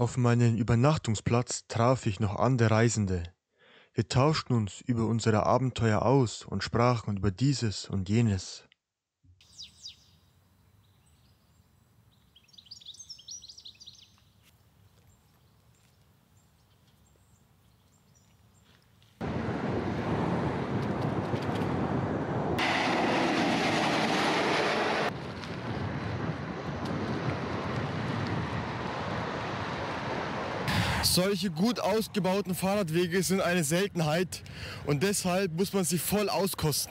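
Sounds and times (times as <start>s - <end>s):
birds chirping: 9.4s - 19.0s
loud steady rushing noise: 19.2s - 25.2s, 26.2s - 33.5s.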